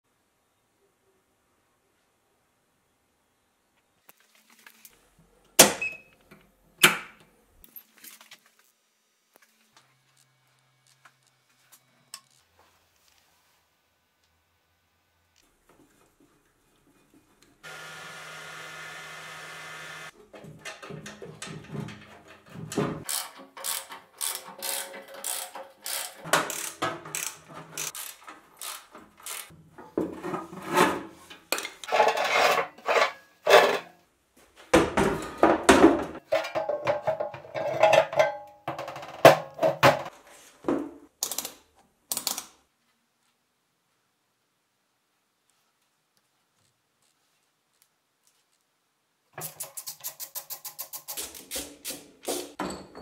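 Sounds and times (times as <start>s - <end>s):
wrench clanking and scraping metal: 20.2s - 34.0s, 36.2s - 39.0s.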